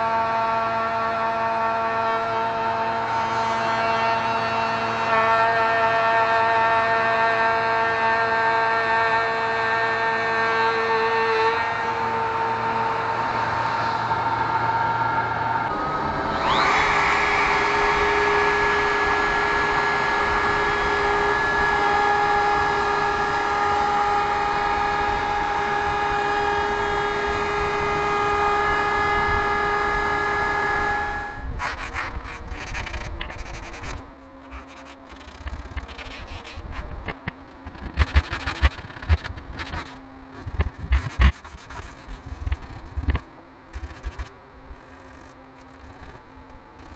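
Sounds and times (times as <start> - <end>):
router whining: 11.8 - 46.9
sandpaper rubbing on wood: 31.6 - 37.0, 37.8 - 43.2, 43.8 - 44.3.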